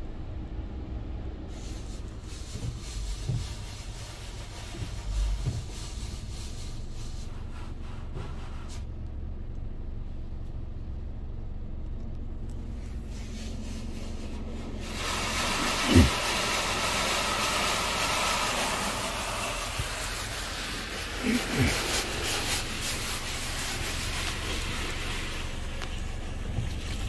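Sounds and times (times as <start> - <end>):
low cabin rumble: 0.0 - 27.0
car wash water jets hissing: 0.2 - 9.0, 12.4 - 27.0.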